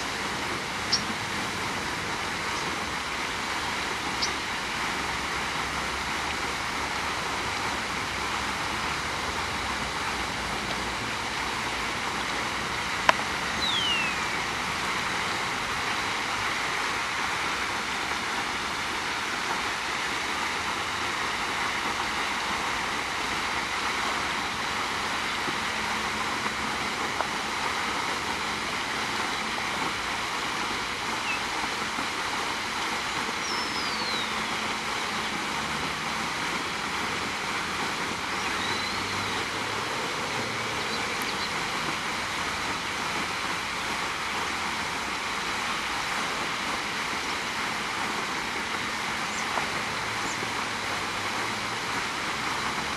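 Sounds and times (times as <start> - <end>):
rushing background noise: 0.0 - 52.9
descending bird whistle: 13.6 - 14.2, 38.5 - 39.1.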